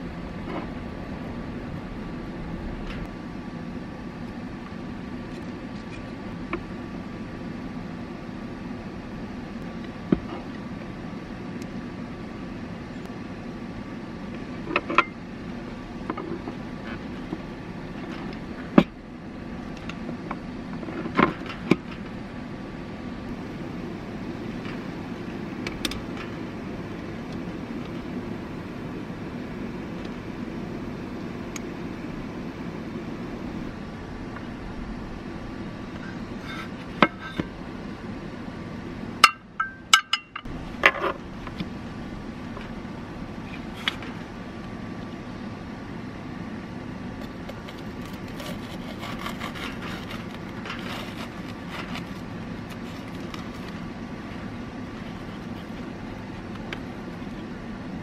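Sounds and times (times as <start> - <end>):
steady low hum: 0.0 - 58.0
knife crunching through toast: 47.5 - 52.2.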